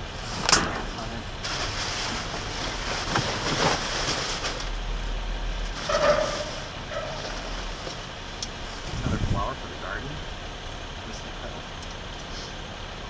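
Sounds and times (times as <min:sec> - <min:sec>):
plastic and bubble wrap crinkling: 0:01.0 - 0:04.8
cardboard and paper scraping: 0:01.4 - 0:04.7, 0:05.7 - 0:08.1.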